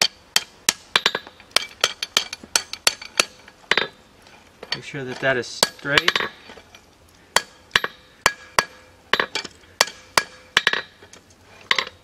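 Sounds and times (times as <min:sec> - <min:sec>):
hammer striking iron on anvil: 0:00.0 - 0:03.9, 0:05.6 - 0:06.3, 0:07.4 - 0:10.9.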